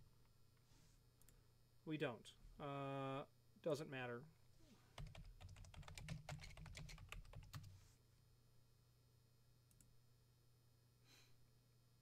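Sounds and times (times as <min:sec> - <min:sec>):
typing on computer keyboard: 0:05.0 - 0:07.7.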